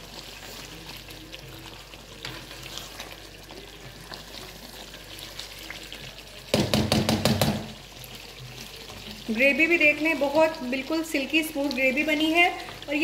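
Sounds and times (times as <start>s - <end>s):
food sizzling and spitting: 0.0s - 13.0s
spatula knocking and scraping pan: 6.5s - 7.8s.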